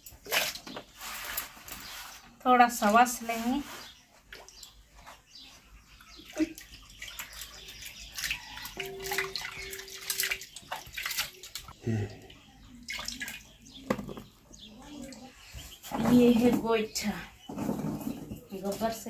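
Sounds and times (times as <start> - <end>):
water splashing in steel bowl: 6.2 - 11.8, 12.8 - 14.1.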